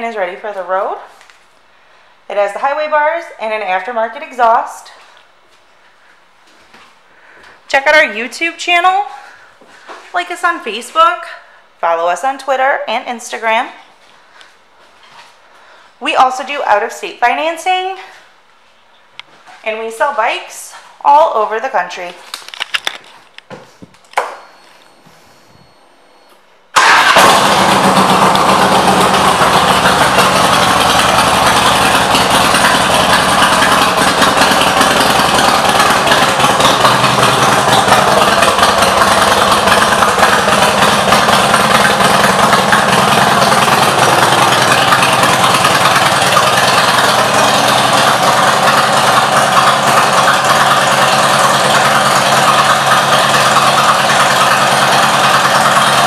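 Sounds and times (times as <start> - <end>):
motorcycle engine starting and idling: 26.7 - 56.0.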